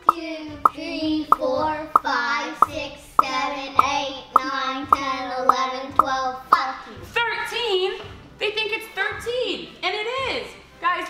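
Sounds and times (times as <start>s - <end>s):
sharp pops: 0.0s - 4.5s.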